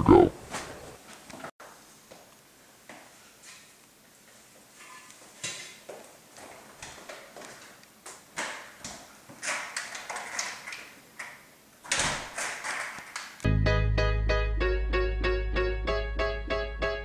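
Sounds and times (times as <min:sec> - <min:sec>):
door clicks and bumps: 0:11.9 - 0:13.3
music: 0:13.5 - 0:17.0.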